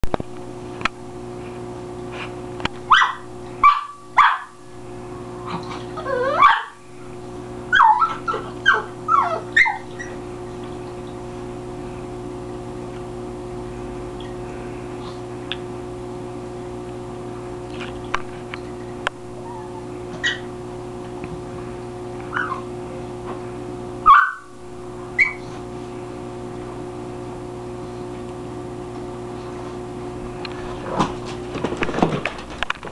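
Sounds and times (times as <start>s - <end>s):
steady hum: 0.0s - 32.9s
dogs barking and yipping: 2.9s - 4.6s, 5.5s - 6.8s, 7.7s - 11.0s, 19.4s - 20.5s, 22.3s - 22.7s, 24.0s - 24.6s, 25.2s - 25.6s.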